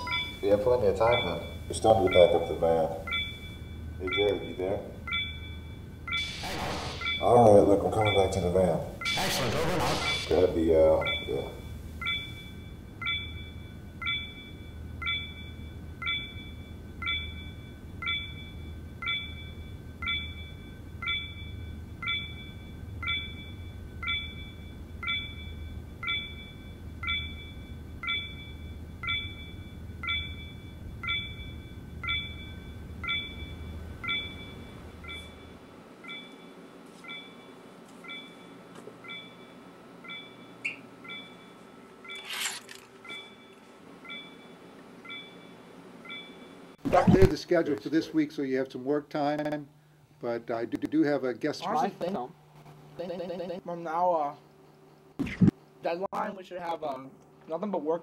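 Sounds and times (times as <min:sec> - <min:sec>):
short electronic pings: 0:00.0 - 0:07.4, 0:08.0 - 0:10.4
low hum: 0:00.0 - 0:47.4.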